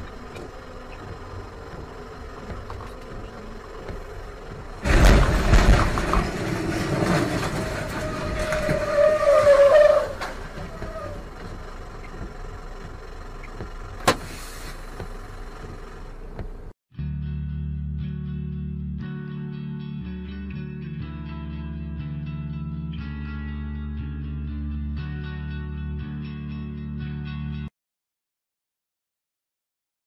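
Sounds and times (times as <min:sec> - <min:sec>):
truck crashing: 0:00.0 - 0:16.1
road noise: 0:00.0 - 0:16.8
truck engine: 0:00.0 - 0:16.8
crunching and scraping: 0:00.1 - 0:13.0
high squeal: 0:07.6 - 0:11.3.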